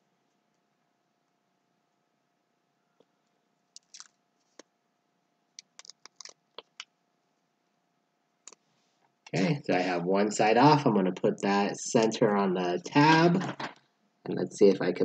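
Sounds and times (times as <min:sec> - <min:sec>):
paper backing crinkling and clicking: 0:05.6 - 0:06.8.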